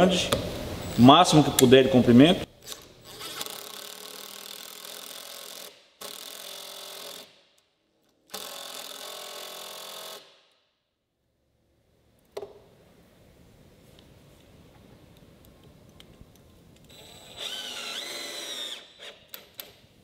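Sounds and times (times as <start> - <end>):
cordless drill driving screw: 2.7 - 7.3, 16.9 - 19.6.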